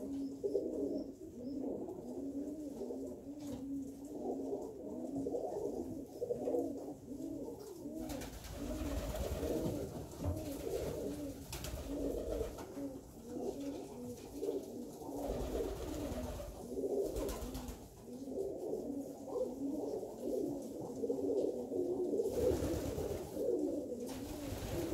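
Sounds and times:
pigeons cooing: 0:00.0 - 0:24.9.

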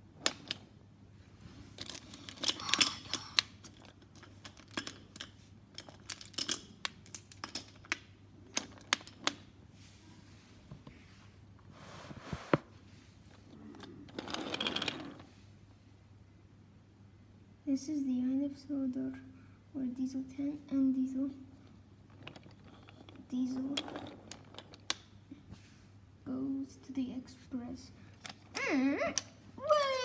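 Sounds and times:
wooden toy trains clicking: 0:01.8 - 0:09.4, 0:22.1 - 0:25.0
rubbing and rustling: 0:08.6 - 0:13.5.

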